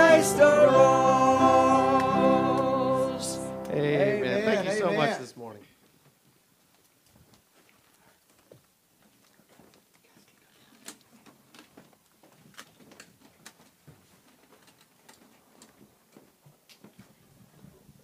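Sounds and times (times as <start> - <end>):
small clicks and knocks: 10.8 - 17.0.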